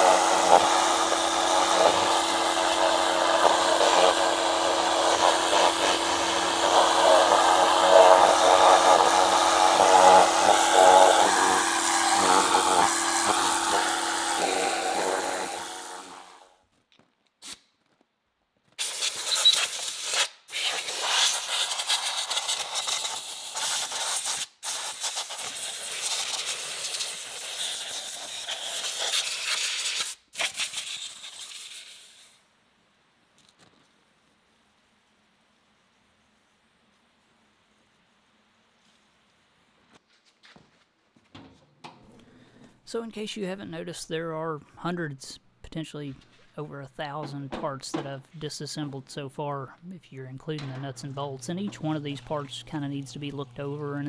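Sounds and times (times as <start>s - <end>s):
water spraying on metal: 0.0s - 16.4s, 18.8s - 32.4s
hose nozzle hissing: 0.0s - 16.5s, 18.8s - 32.4s
pressure washer motor humming: 0.0s - 16.5s, 50.4s - 54.0s.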